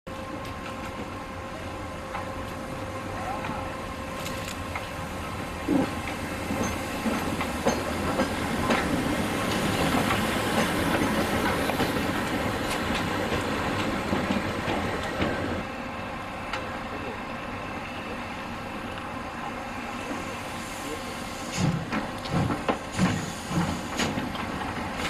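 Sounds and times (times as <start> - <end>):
steam locomotive hiss: 1.6 - 25.0
train wheels clattering over rail joints: 5.6 - 15.5, 21.5 - 25.0.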